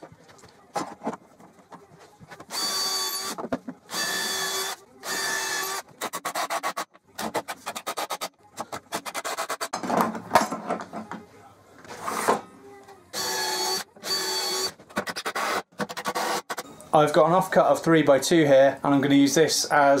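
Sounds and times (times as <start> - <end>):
cordless drill boring wood: 2.5 - 5.8, 13.2 - 14.7.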